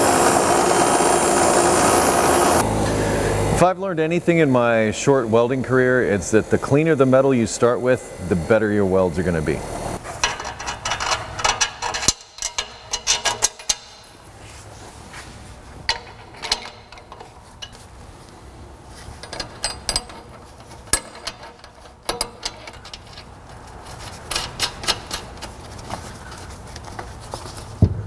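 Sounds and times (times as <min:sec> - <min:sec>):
metal clinks and scrapes: 0:10.0 - 0:14.1, 0:15.8 - 0:18.3, 0:18.9 - 0:27.8.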